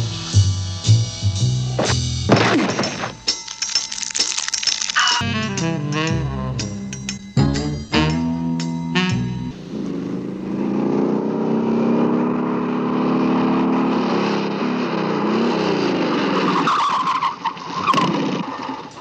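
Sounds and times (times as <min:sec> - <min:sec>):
cartoon motorcycle engine running: 0:05.2 - 0:16.2
tyre screech: 0:16.3 - 0:19.0.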